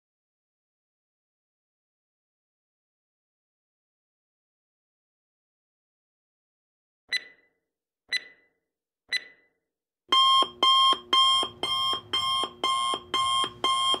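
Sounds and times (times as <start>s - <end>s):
electronic alarm beeping: 7.1s - 7.5s, 8.1s - 8.5s, 9.1s - 9.4s, 10.1s - 14.0s
timer ticks: 7.1s - 7.5s, 8.1s - 8.5s, 9.1s - 9.5s, 10.1s - 14.0s.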